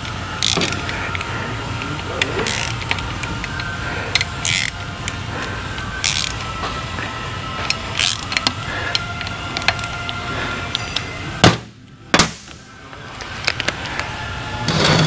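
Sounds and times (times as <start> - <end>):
tools and metal parts clicking: 0.0 - 6.6, 7.6 - 11.2, 13.2 - 14.0
steady background hum: 0.0 - 15.0.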